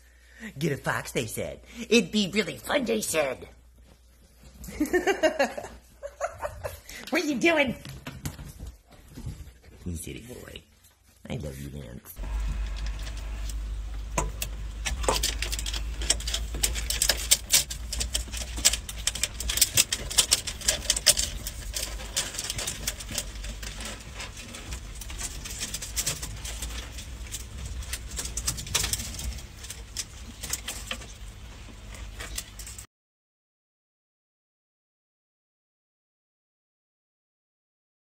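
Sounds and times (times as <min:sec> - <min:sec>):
steady low hum: 0:12.2 - 0:32.8.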